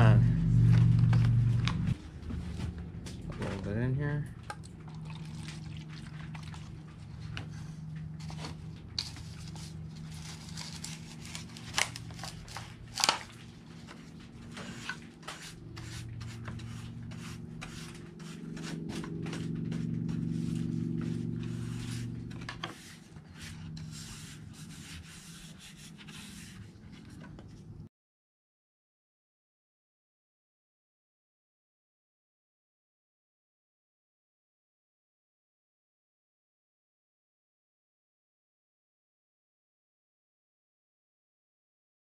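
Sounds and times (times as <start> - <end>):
low steady hum: 0.0 - 27.9
paintbrush brushing on wood: 14.0 - 27.2.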